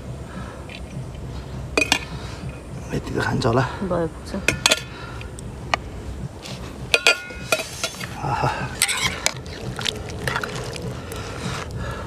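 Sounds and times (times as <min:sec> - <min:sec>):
metal spoon clinking on plates: 0:07.0 - 0:08.0, 0:08.8 - 0:09.4.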